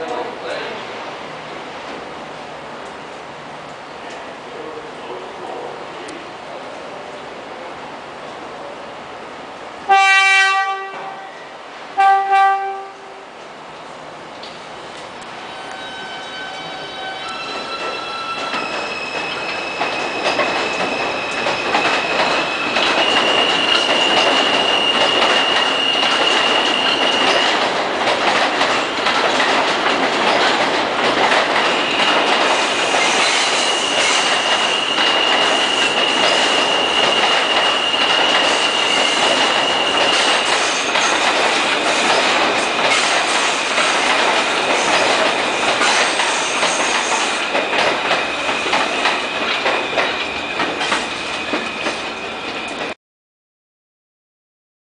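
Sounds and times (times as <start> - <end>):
train wheels rumbling on rail: 0.0 - 53.0.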